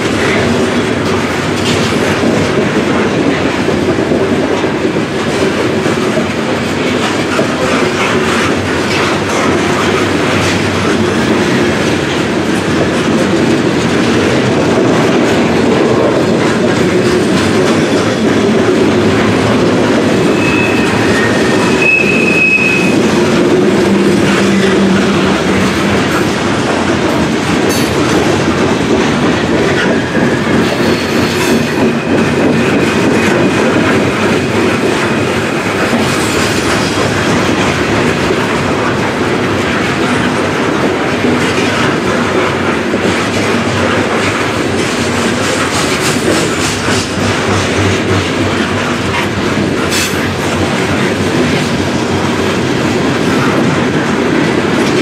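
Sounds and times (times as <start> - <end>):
freight train cars rolling past: 0.0 - 55.0
high wheel squeal: 20.2 - 23.2.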